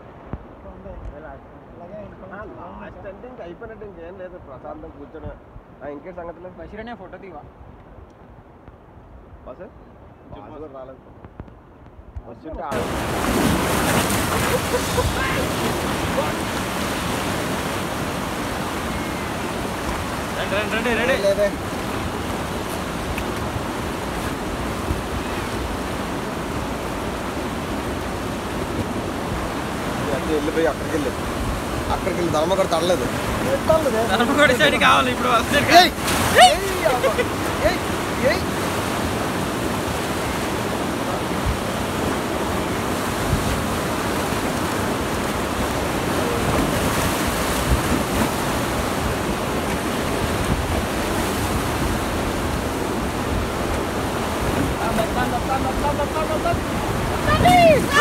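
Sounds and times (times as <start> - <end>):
wind buffeting microphone: 11.1 - 58.0
river rapids rushing: 12.6 - 58.0.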